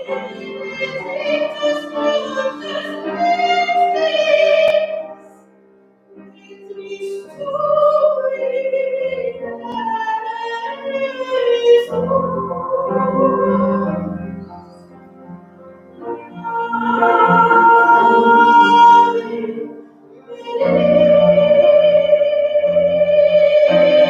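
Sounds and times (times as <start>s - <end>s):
person singing sacred song: 0.0s - 5.2s, 16.3s - 24.0s.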